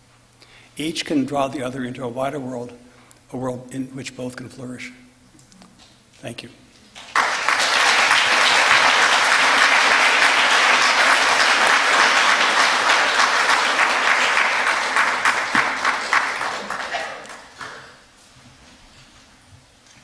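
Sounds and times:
audience applauding: 7.0s - 18.0s.

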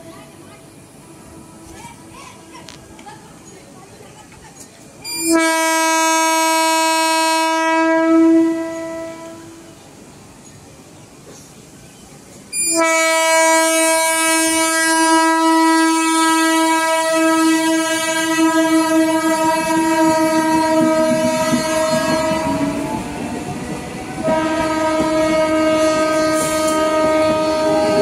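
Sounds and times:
train wheels rumbling on rails: 0.0s - 28.0s
train horn blast: 5.0s - 9.8s, 12.5s - 28.0s.

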